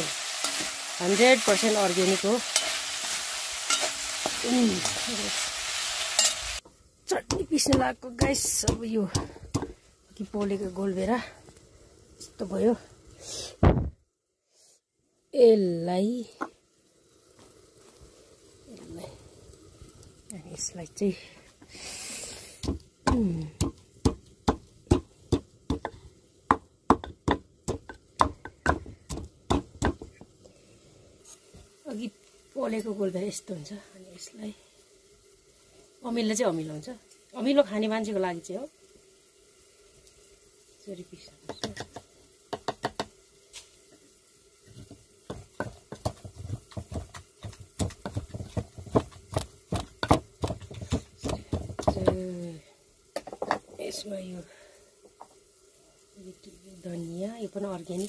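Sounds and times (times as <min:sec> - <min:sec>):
wooden pestle pounding in mortar: 0:22.6 - 0:30.1, 0:45.3 - 0:52.2.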